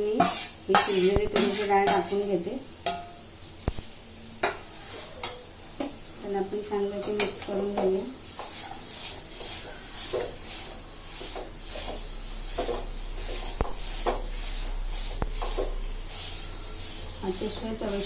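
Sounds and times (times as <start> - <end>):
metal spoon scraping a pan: 0.0 - 3.1, 4.4 - 5.5, 6.8 - 18.0
spoon clicking against pan: 7.0 - 7.5.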